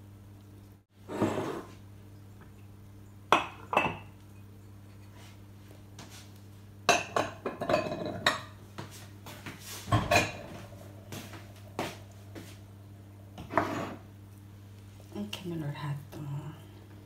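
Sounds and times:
ceramic bowls clinking on wood: 0:06.9 - 0:08.6.

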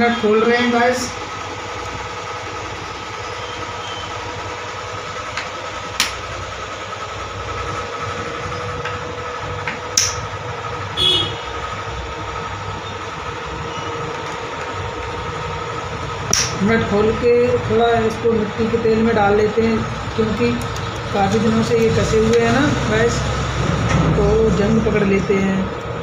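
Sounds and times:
electric machine humming: 0:00.0 - 0:26.0
sharp metallic clicks: 0:05.3 - 0:06.3, 0:09.9 - 0:10.3, 0:16.2 - 0:16.8, 0:20.4 - 0:22.5.

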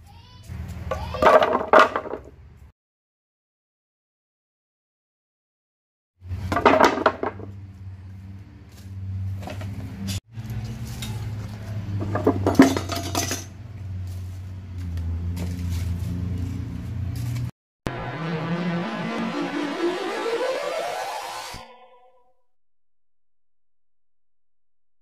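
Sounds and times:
wooden boards clattering: 0:01.2 - 0:02.3, 0:06.5 - 0:07.5.

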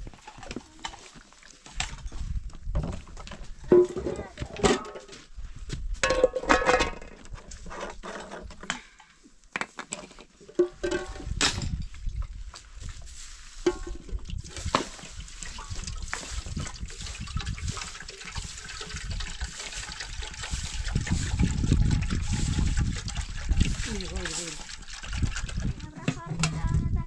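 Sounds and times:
water trickling and splashing: 0:00.0 - 0:03.2, 0:10.4 - 0:26.2.

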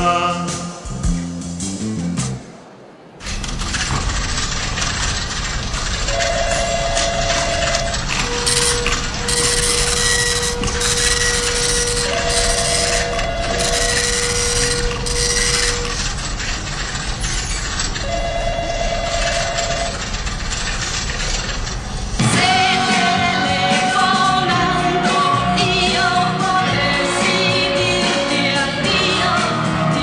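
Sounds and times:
loud even hiss: 0:00.0 - 0:18.0
steady phone-line tone: 0:05.9 - 0:16.4, 0:18.0 - 0:20.2
electronic telephone ringing: 0:06.0 - 0:16.2, 0:18.0 - 0:20.2.

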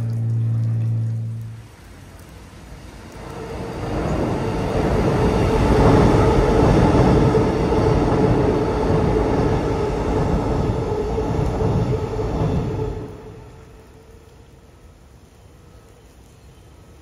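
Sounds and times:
steady whine: 0:00.0 - 0:01.8, 0:03.1 - 0:14.6
train rumbling over steel bridge: 0:00.0 - 0:17.0.

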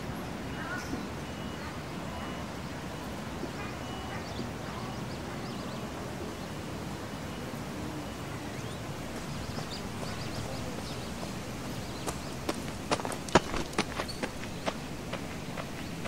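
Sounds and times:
outdoor ambient hiss: 0:00.0 - 0:16.0
bird chirps: 0:08.5 - 0:16.0.

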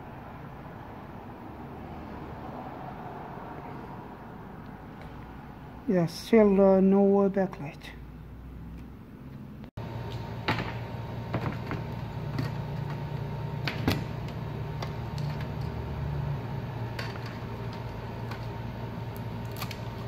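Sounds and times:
steady low hum: 0:08.0 - 0:20.0.

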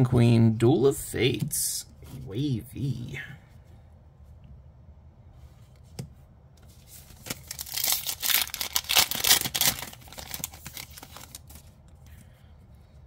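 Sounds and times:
foil wrapper tearing and crinkling: 0:07.2 - 0:11.7.

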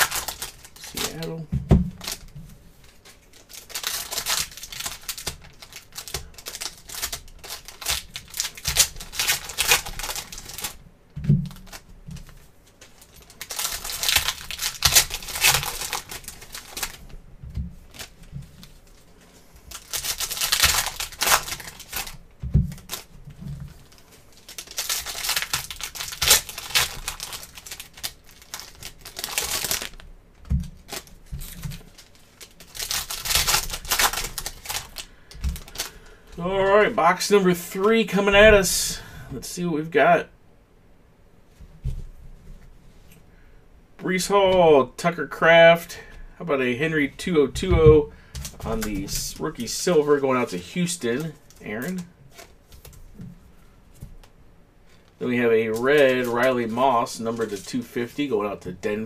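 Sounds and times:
foil packs crinkling and tearing: 0:00.0 - 0:01.4, 0:02.0 - 0:10.8, 0:11.4 - 0:17.1, 0:19.6 - 0:38.0, 0:48.2 - 0:53.0, 0:54.9 - 0:59.0.

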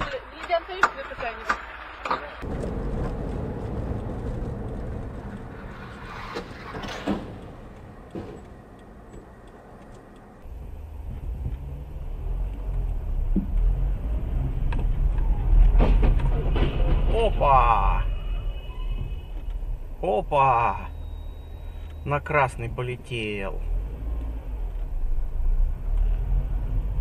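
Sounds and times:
car engine and road noise: 0:00.0 - 0:27.0.

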